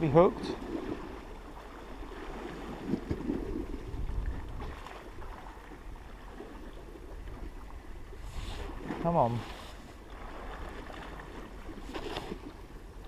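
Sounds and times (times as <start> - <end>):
sea washing against wall: 0.0 - 5.6, 8.1 - 12.7
wind rumbling on microphone: 0.0 - 13.0.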